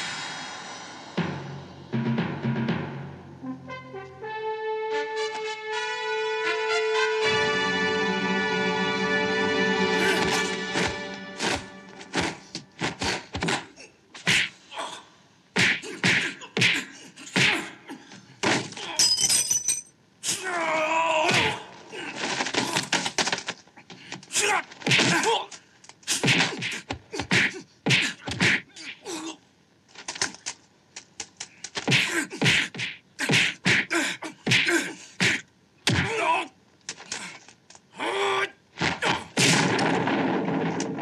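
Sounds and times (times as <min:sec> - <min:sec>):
punch and kick impacts: 0:24.8 - 0:25.4, 0:26.1 - 0:28.6, 0:31.8 - 0:36.2, 0:38.8 - 0:41.0
fighters grunting: 0:31.9 - 0:36.5.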